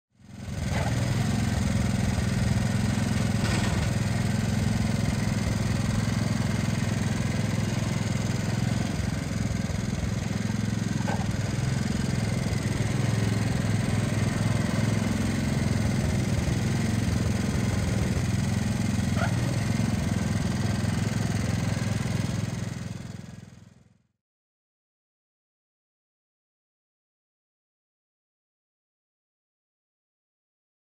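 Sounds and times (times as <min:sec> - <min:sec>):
garden tractor engine running: 0:00.2 - 0:23.9.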